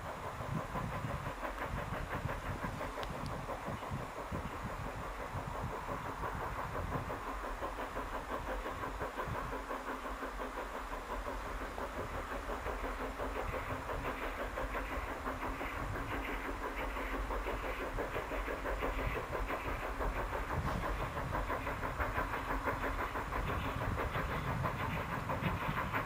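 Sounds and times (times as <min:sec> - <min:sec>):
steam locomotive chuffing: 0:00.0 - 0:26.0.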